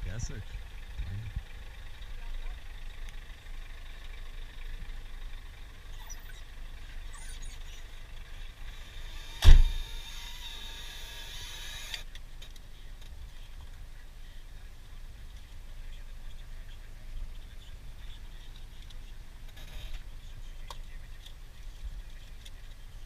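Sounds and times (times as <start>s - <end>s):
truck engine idling: 0.0s - 11.9s
loud sharp thump: 9.4s - 9.9s.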